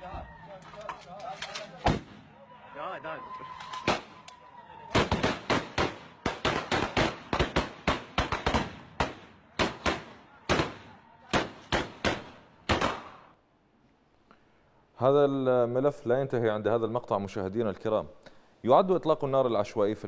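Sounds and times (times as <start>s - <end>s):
rifle gunshots: 4.9s - 13.3s.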